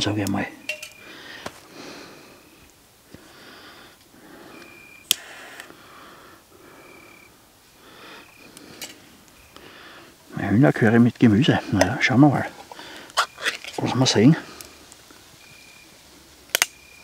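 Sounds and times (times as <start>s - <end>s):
breathing through the nose: 1.0s - 10.2s, 12.5s - 13.3s.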